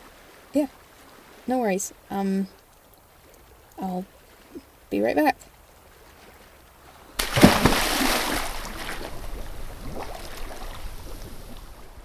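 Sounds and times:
water sloshing and bubbling: 0.0s - 12.0s
big splash into water: 7.2s - 11.9s.

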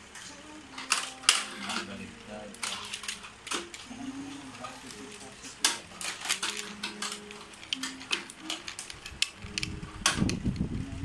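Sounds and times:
plastic toy clattering on wood: 5.6s - 10.3s.

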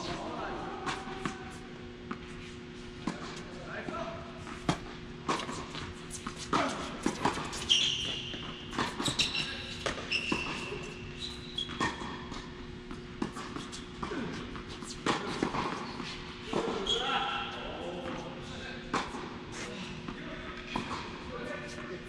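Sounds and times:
tennis racket striking ball: 4.4s - 7.7s
tennis ball bouncing: 4.4s - 11.0s, 11.6s - 16.8s
shoes squeaking on court: 4.4s - 18.4s.

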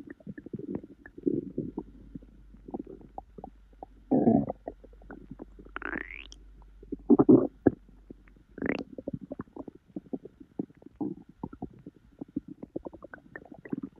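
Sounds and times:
stomach gurgling: 0.0s - 13.9s
quick pops and bubbling clicks: 5.8s - 6.4s.

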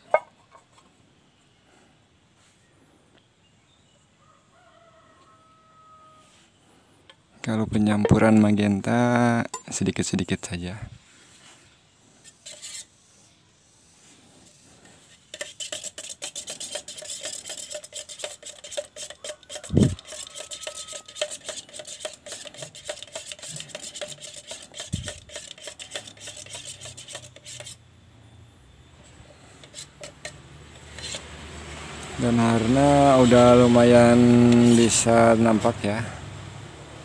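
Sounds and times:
spoon scraping metal paint can: 12.2s - 13.0s, 14.4s - 27.8s, 29.0s - 36.0s.

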